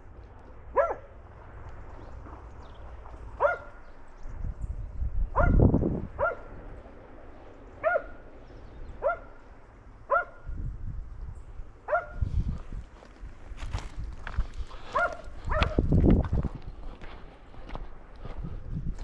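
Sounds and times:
dog barking: 0.7 - 1.1, 3.4 - 3.8, 5.3 - 5.6, 6.2 - 6.5, 7.8 - 8.2, 9.0 - 9.4, 10.1 - 10.5, 11.9 - 12.3, 14.8 - 15.9.

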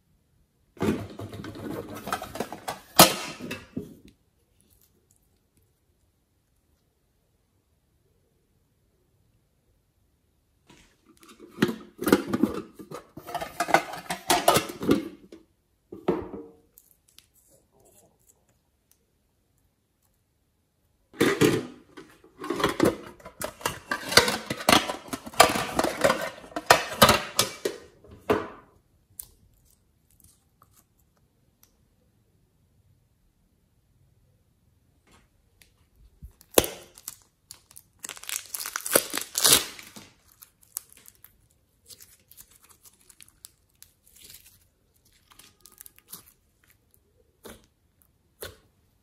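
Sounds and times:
plastic packaging crinkling: 36.2 - 47.3.

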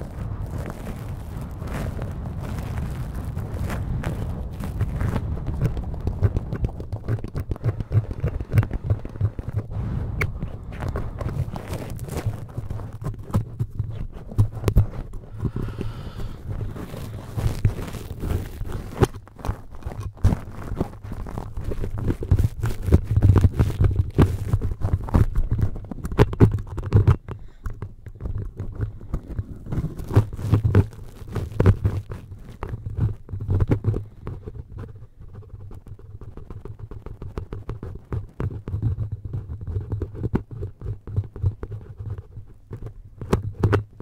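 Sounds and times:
deep handling rumble: 0.0 - 13.8
fingertips scratching microphone: 0.0 - 44.0.

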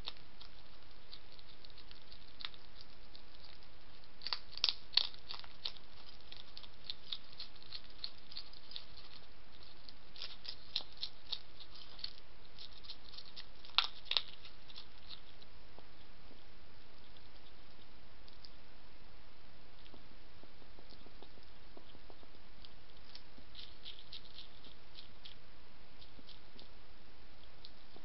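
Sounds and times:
hedgehog crunching food: 0.0 - 18.6, 19.7 - 28.0.

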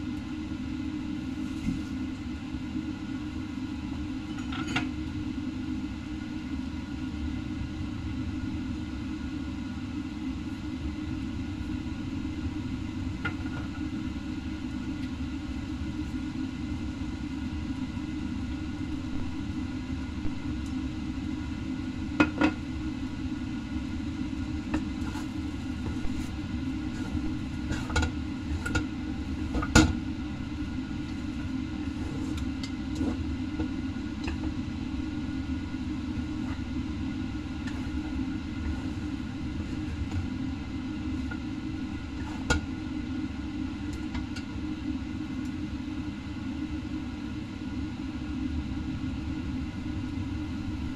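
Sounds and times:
steady low rumble: 10.4 - 42.3.

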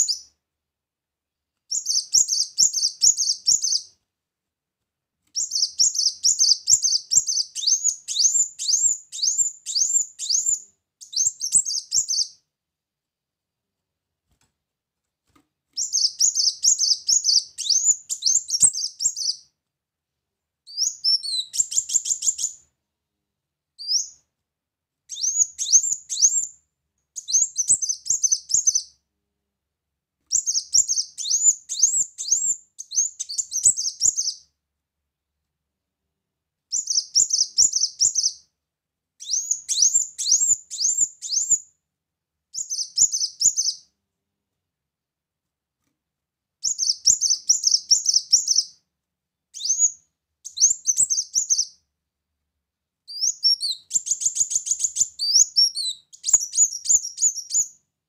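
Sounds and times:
bird singing high squeaky chirps: 1.7 - 3.9, 5.4 - 12.4, 15.8 - 19.5, 20.7 - 22.6, 25.1 - 26.5, 27.2 - 28.9, 30.3 - 34.4, 36.7 - 38.4, 39.2 - 41.6, 42.6 - 43.9, 46.6 - 48.8, 49.6 - 51.8, 53.1 - 57.8.

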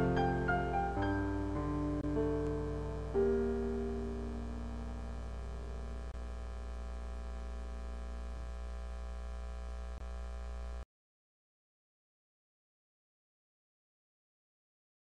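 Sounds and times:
piano chord: 0.0 - 6.2
low electrical hum: 0.0 - 10.8.

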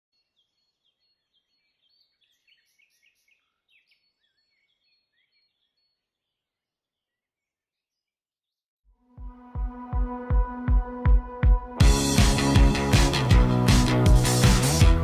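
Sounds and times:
small birds chirping: 0.1 - 8.3.

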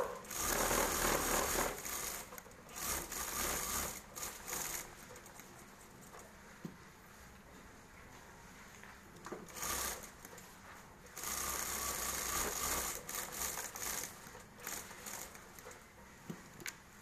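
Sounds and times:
sewing machine stitching: 0.0 - 5.2, 9.4 - 10.2, 11.2 - 15.8.

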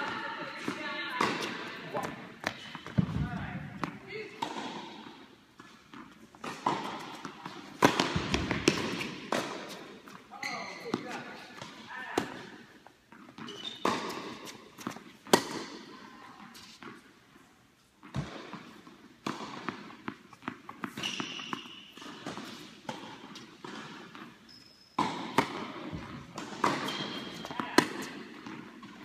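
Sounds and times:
tennis balls bouncing and struck: 0.0 - 16.0, 18.0 - 29.0
shoe squeaks on court: 10.3 - 11.3, 13.4 - 14.6, 20.9 - 22.6, 24.4 - 25.0, 26.7 - 27.5.

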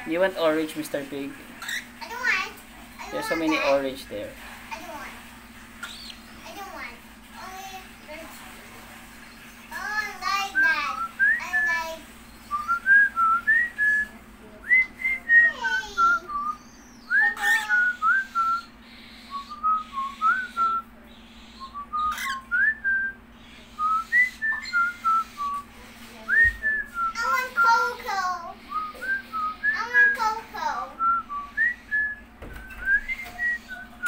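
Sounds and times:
cockatiel whistling: 14.7 - 25.6, 31.0 - 34.0.

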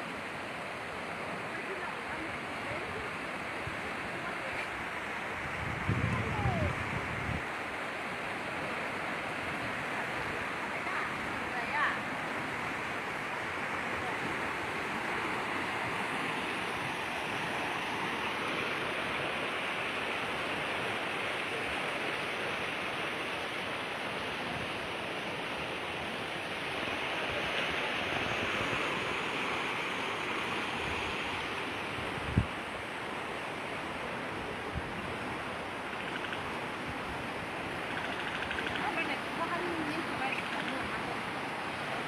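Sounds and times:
flood river rushing: 0.0 - 42.0.

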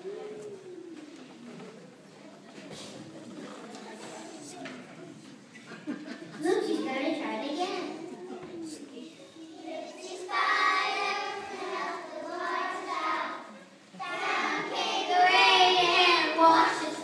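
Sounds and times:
children singing: 9.4 - 17.0.

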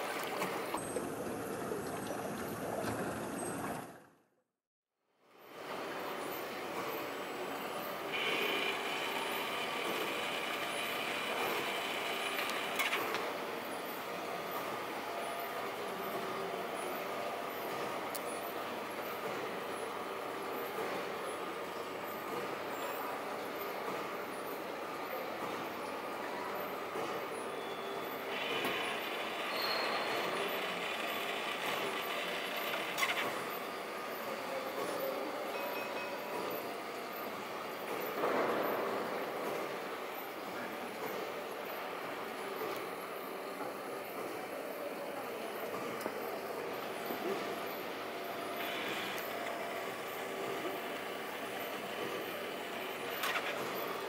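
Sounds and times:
small motors and gearing running: 5.4 - 38.2, 41.6 - 54.0
small motors whirring: 8.1 - 13.2, 28.1 - 33.7, 48.4 - 54.0
high mechanical squeal: 27.4 - 36.6.

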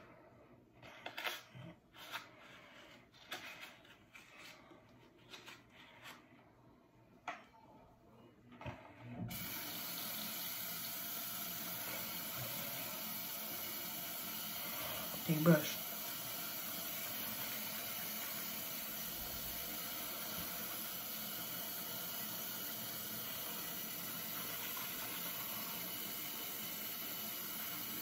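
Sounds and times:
tap water running into sink: 9.3 - 28.0.

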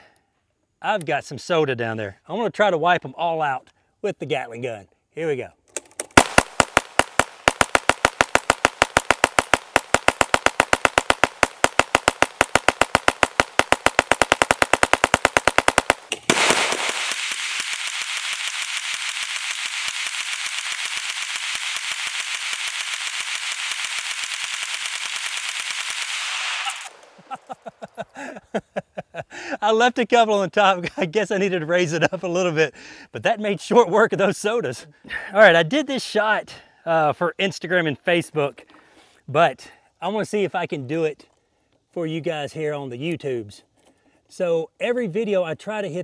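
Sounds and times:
gatling gun rapid shots: 6.2 - 27.5
steady hiss: 16.0 - 28.4.

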